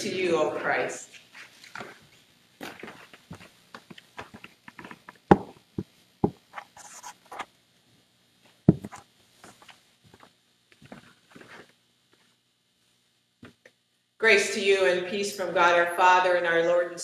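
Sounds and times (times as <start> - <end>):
loud knocks: 5.3 - 5.6, 8.7 - 8.9.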